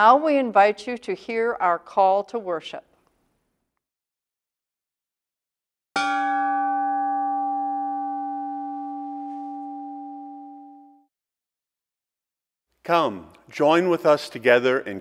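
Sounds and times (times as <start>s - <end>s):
bell ringing: 6.0s - 11.0s.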